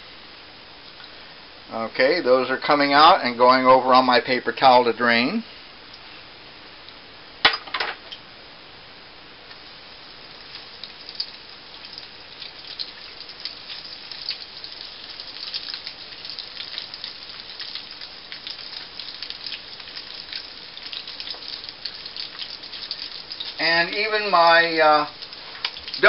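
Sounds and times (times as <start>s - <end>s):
dough sizzling in hot oil: 8.2s - 26.0s.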